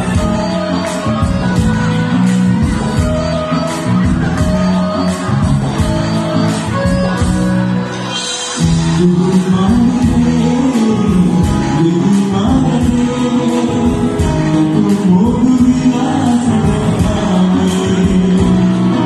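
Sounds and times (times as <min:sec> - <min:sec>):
live band playing: 0:00.0 - 0:19.0
person singing: 0:08.1 - 0:19.0.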